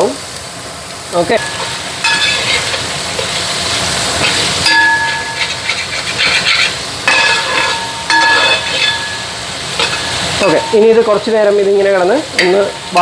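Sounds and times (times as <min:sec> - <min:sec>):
onions sizzling in a pan: 0:00.0 - 0:13.0
spoon scraping a metal pan: 0:01.4 - 0:03.4, 0:04.2 - 0:10.7.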